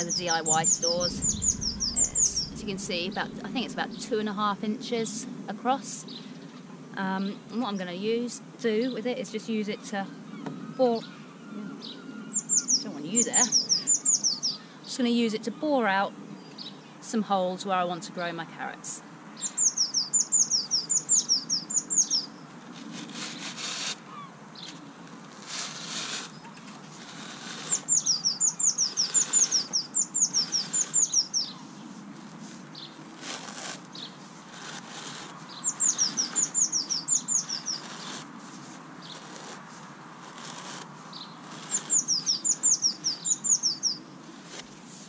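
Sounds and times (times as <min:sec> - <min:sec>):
songbird singing: 0:00.0 - 0:25.2, 0:26.1 - 0:44.9
plastic pipe scraping into sand: 0:33.2 - 0:42.4.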